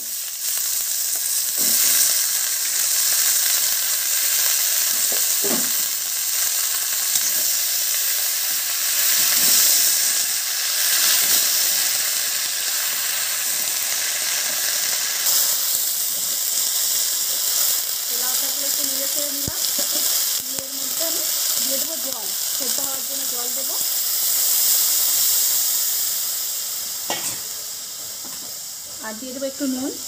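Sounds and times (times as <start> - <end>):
vegetables sizzling in hot oil: 0.0 - 30.0.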